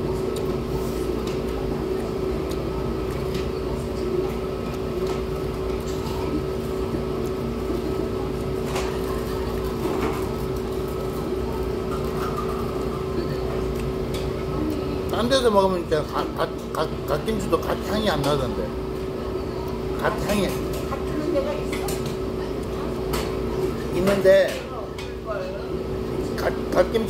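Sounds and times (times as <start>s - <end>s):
chewing noises: 1.2s - 3.5s.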